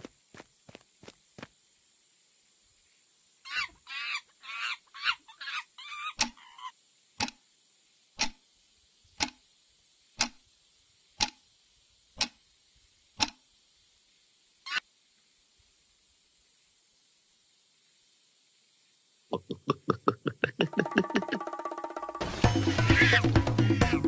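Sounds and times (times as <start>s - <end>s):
warbling chattering animal calls: 22.6s - 24.0s
short sharp animal call: 22.7s - 24.0s.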